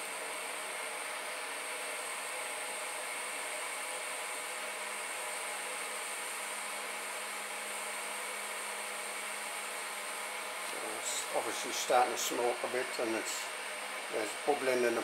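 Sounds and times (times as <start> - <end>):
gas burner flame hissing: 0.0 - 15.0.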